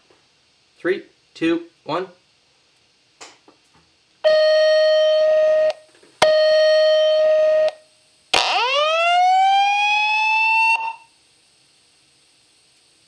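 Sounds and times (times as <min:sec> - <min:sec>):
fire alarm tones: 0:04.2 - 0:07.8, 0:08.4 - 0:11.1.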